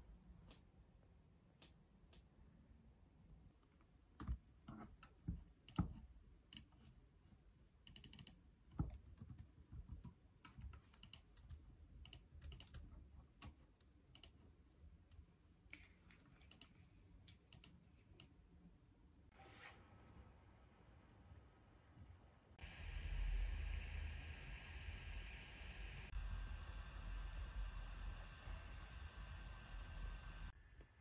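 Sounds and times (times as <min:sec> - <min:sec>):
typing on laptop keyboard: 0:07.8 - 0:14.4, 0:16.4 - 0:16.8.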